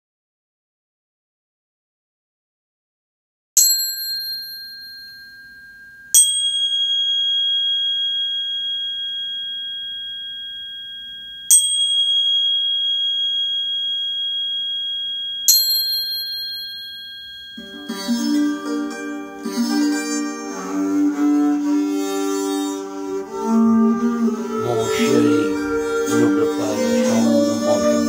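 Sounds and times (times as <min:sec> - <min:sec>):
metal chime ringing: 0:03.6 - 0:20.2.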